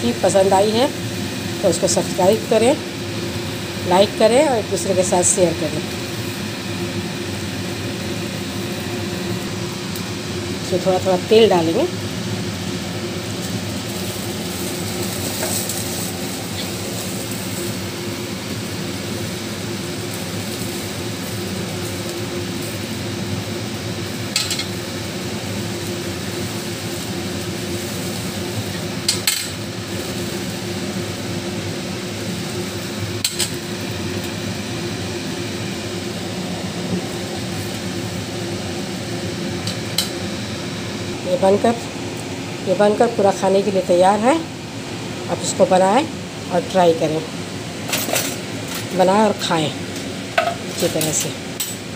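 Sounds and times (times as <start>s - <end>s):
gas burner hum and hiss: 0.0s - 51.9s
metal skewers clinking on grill: 24.3s - 24.7s, 29.1s - 29.6s.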